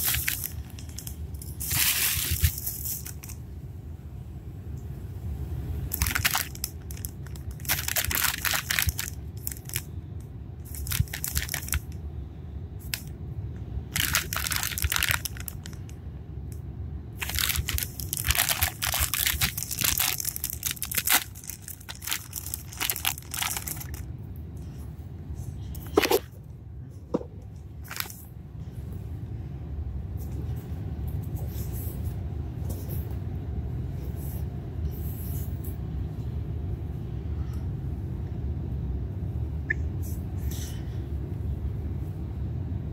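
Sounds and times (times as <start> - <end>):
plastic bag crinkling: 0.0 - 3.4, 5.9 - 9.9, 10.7 - 11.9, 13.9 - 15.8, 17.2 - 24.1, 27.8 - 28.2.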